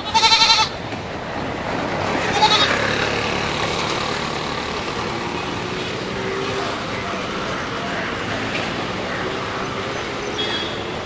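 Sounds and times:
road traffic passing: 0.0s - 11.0s
car horn honk: 10.4s - 11.0s.

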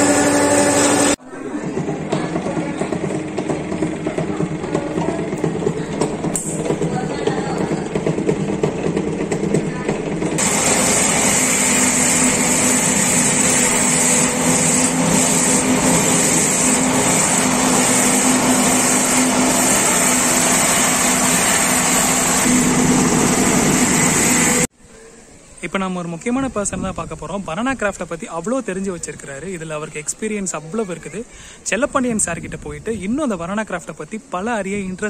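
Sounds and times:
machine whirring with low hum: 0.0s - 24.7s
quieter braiding machine turning: 0.0s - 24.7s.

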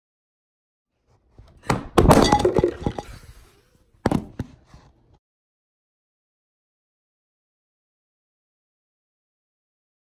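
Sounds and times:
hard objects clattering: 2.0s - 3.4s.

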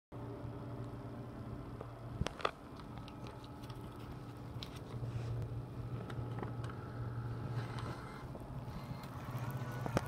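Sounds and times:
vending machine electrical hum: 0.1s - 10.0s.

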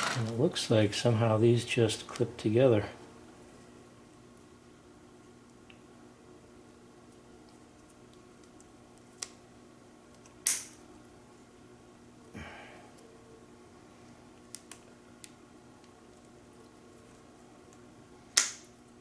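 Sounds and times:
loud plastic snap: 10.4s - 10.8s, 18.4s - 18.7s.

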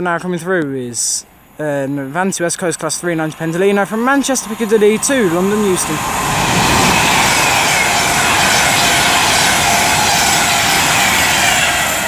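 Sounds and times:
train passing on rails: 1.2s - 12.0s.

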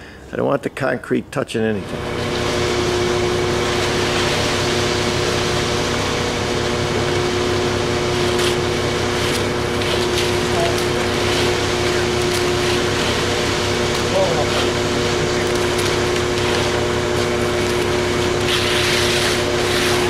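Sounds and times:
diesel truck engine running: 1.9s - 20.0s
tools scraping wet concrete: 8.0s - 20.0s.

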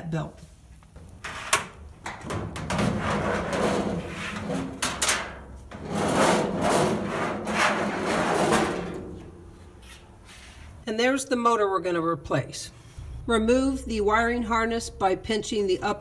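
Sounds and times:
metal drum scraping: 1.2s - 10.1s.

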